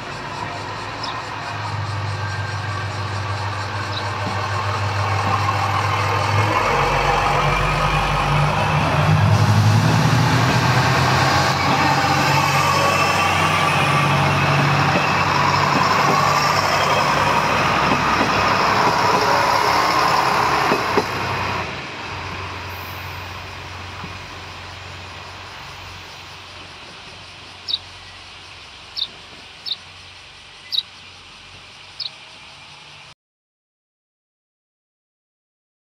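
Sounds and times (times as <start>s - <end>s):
diesel railcar engines running: 0.0s - 33.1s.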